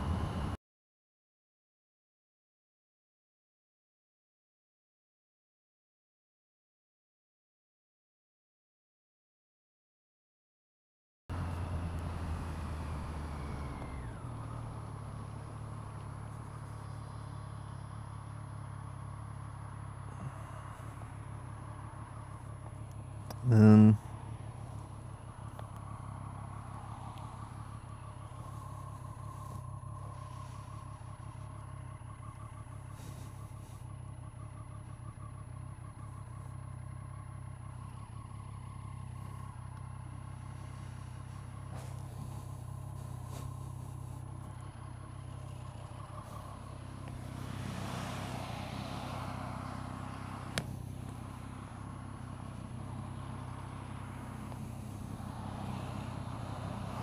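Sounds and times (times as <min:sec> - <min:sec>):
motorcycle engine idling: 0:11.3 - 0:47.7, 0:48.3 - 0:57.0.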